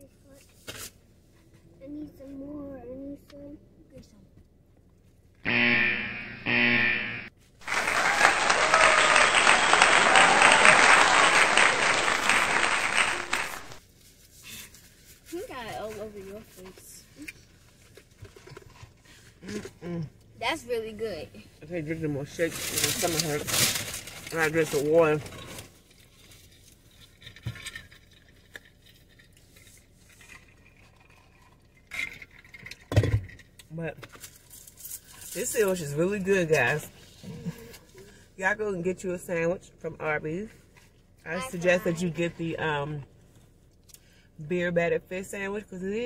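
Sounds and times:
crowd applauding and cheering: 7.6 - 13.8.

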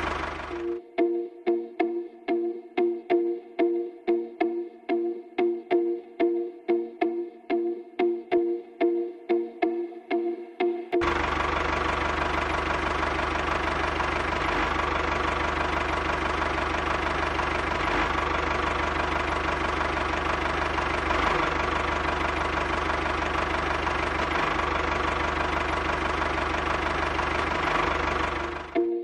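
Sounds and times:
small engine knocking steadily: 0.0 - 0.8, 11.0 - 28.8.

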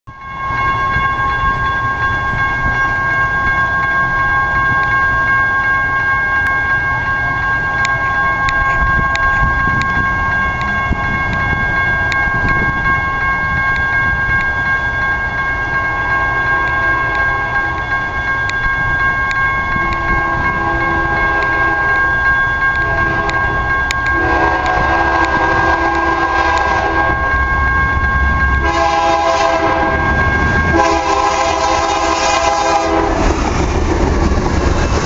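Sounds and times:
railroad crossing bells ringing: 0.1 - 35.0
low rumble: 8.3 - 14.4, 26.6 - 30.8.

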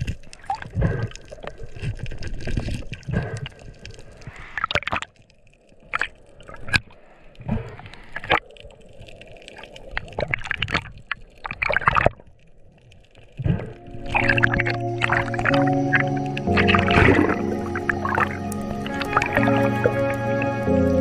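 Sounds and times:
water gurgling and sloshing: 0.0 - 21.0
background music: 13.8 - 21.0.

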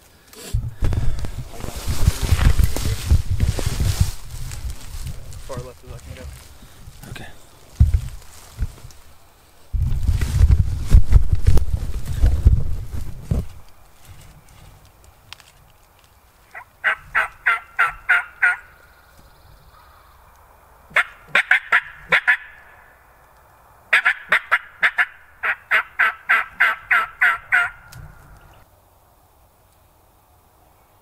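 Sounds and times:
turkey yelping: 16.5 - 18.7, 20.9 - 23.0, 23.9 - 28.5.

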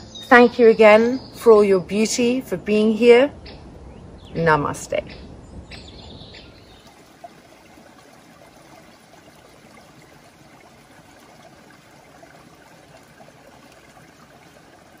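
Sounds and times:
stream babbling over stones: 6.2 - 15.0.

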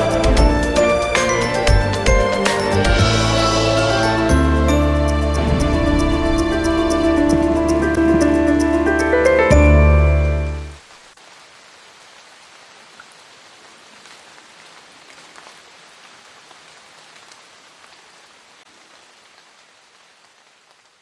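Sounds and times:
rain pattering: 5.1 - 9.2, 10.7 - 21.0.

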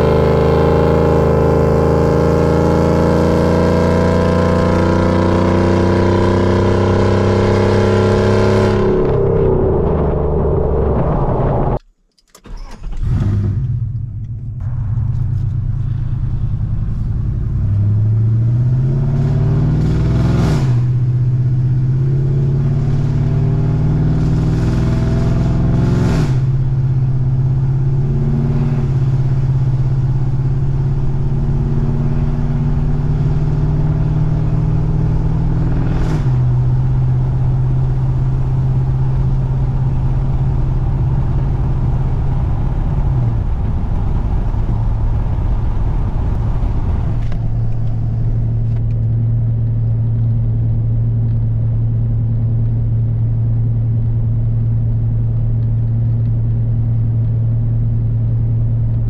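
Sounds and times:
loud truck exhaust running: 0.0 - 11.9, 13.0 - 59.0.

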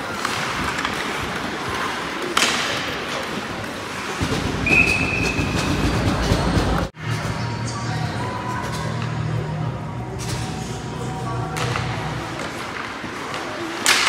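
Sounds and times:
hockey stick crack: 0.0 - 5.9, 11.6 - 14.0
skates scraping on ice: 0.0 - 6.9
referee's whistle: 4.6 - 5.6.

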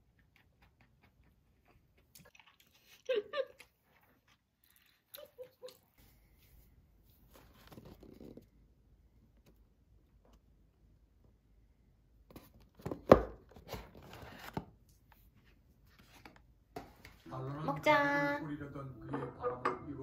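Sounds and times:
faint cardboard rustle: 6.0 - 8.5, 13.5 - 17.2.

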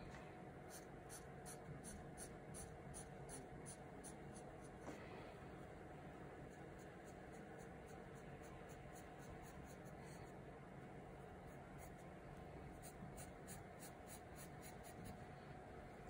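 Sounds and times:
pencil scratching on paper: 0.7 - 4.8, 6.4 - 10.4, 11.4 - 12.1, 12.7 - 15.2.

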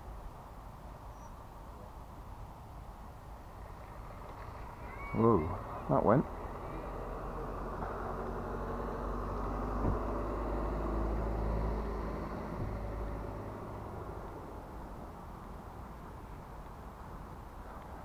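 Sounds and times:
car passing by: 3.6 - 18.0.

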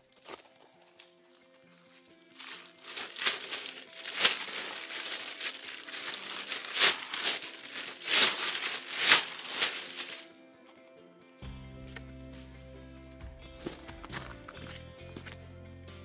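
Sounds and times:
crinkling and rustling: 0.0 - 10.3.

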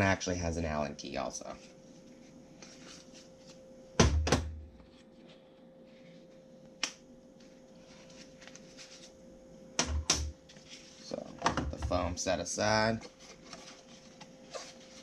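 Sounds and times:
faint packaging rustling: 7.3 - 9.2, 12.9 - 15.0.

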